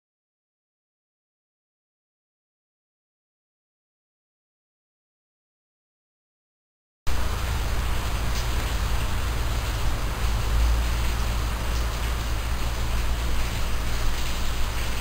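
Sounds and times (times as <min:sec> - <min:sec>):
microphone hiss and rumble: 0:07.1 - 0:15.0.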